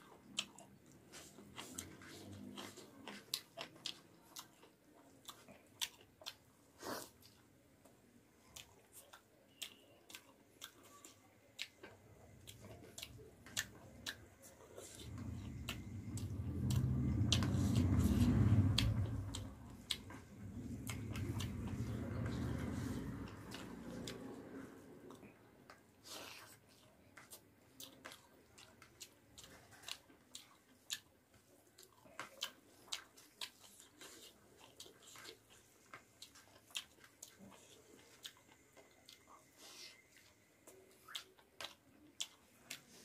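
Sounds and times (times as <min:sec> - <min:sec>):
close-up chewing food: 0:00.0 - 0:43.0
low rumble: 0:14.8 - 0:24.7.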